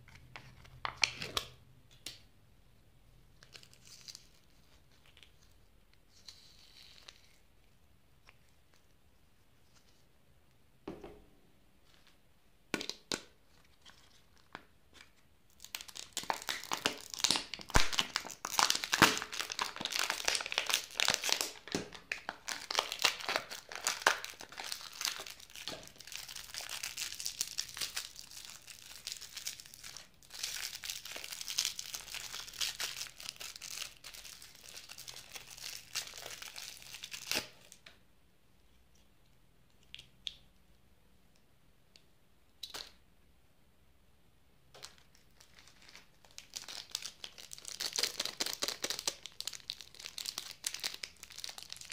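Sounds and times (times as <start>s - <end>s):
foil wrapper crinkling and tearing: 3.4s - 5.5s, 15.6s - 37.8s, 44.8s - 51.9s.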